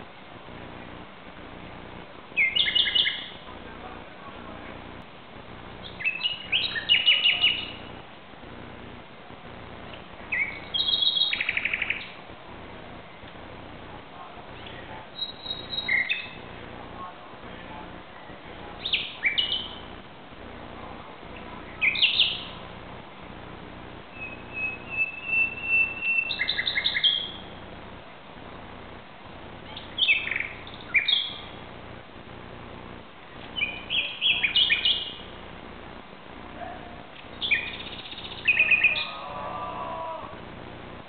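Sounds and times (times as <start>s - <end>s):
low background noise: 0.0s - 41.0s
nightingale singing: 2.3s - 3.5s, 5.8s - 8.0s, 10.2s - 12.2s, 14.6s - 16.6s, 18.2s - 20.0s, 21.3s - 22.7s, 24.0s - 27.6s, 29.6s - 31.7s, 33.4s - 35.4s, 37.2s - 40.2s.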